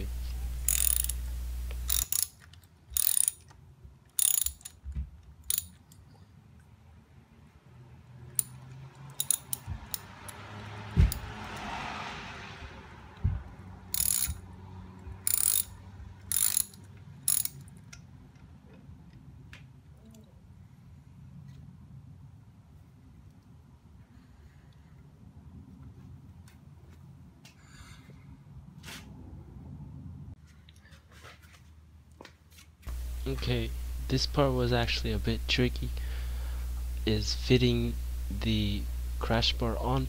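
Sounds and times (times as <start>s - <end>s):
socket ratchet wrench clicking: 0.7s - 3.5s, 4.1s - 6.0s, 8.3s - 10.4s, 13.9s - 14.4s, 15.2s - 17.8s.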